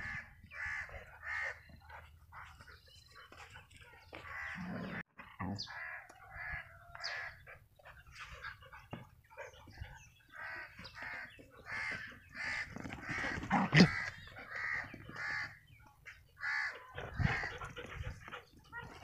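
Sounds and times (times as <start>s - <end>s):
crows cawing: 16.4s - 17.5s.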